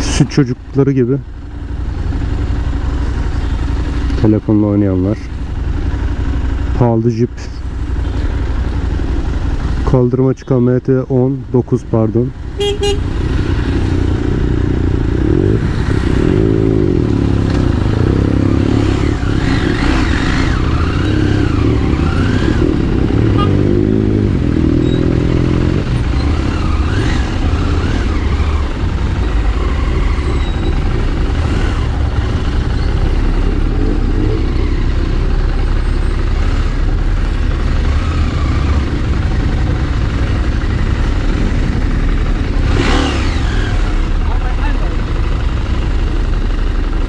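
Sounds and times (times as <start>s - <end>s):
motorcycle engine running: 0.0s - 47.0s
traffic rumble: 0.0s - 47.0s.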